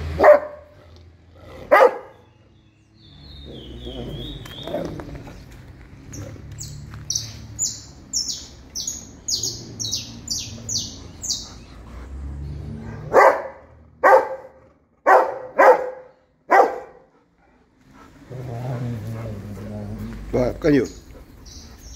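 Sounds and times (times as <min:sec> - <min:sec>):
dog barking deeply: 0:00.0 - 0:00.8, 0:01.5 - 0:02.2, 0:12.8 - 0:17.1
small bird chirping: 0:06.1 - 0:11.8, 0:20.8 - 0:21.9.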